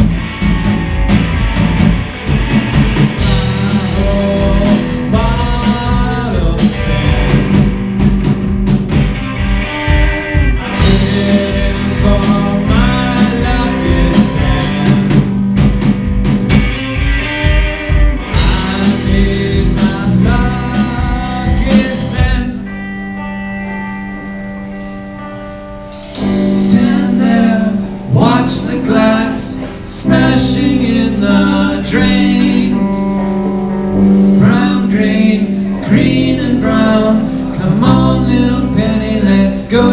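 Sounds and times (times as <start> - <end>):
drum kit: 0.0 - 39.9
electric guitars: 0.0 - 39.9
person singing: 3.2 - 7.9, 10.1 - 15.5, 17.4 - 22.9, 26.2 - 33.3, 34.2 - 39.9.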